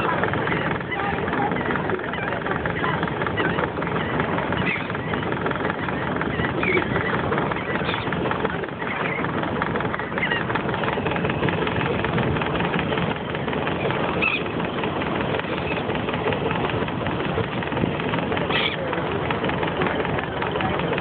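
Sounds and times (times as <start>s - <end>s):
gull calls: 0.0s - 9.3s, 9.9s - 11.1s, 14.0s - 14.6s, 18.4s - 18.8s
sea: 0.0s - 21.0s.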